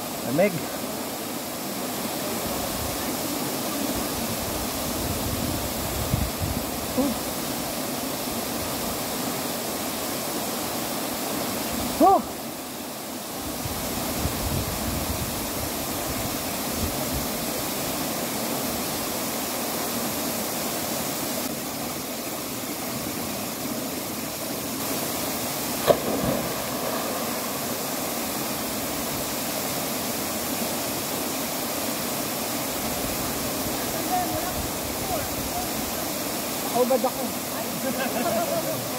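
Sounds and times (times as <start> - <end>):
waterfall rushing: 0.0 - 38.9
person splashing into water: 25.8 - 27.2.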